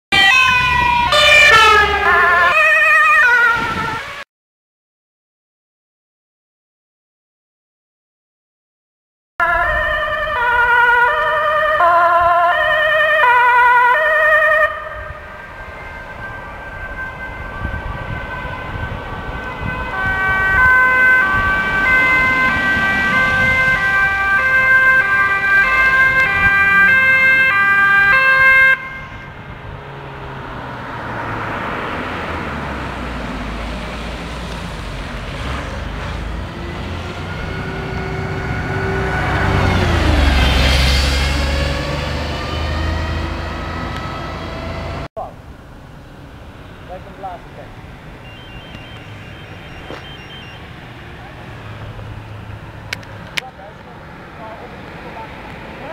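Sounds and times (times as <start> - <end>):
two-tone ambulance siren: 0.1 - 4.3, 9.4 - 29.6, 35.8 - 45.1, 46.8 - 52.7
passing vehicle tyres and engine: 0.2 - 4.2, 9.4 - 55.9.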